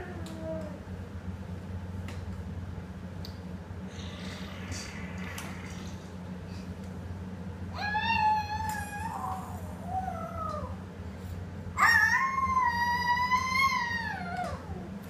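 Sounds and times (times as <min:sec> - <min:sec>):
animal howling: 0:00.0 - 0:00.9, 0:07.7 - 0:10.8, 0:11.8 - 0:15.0.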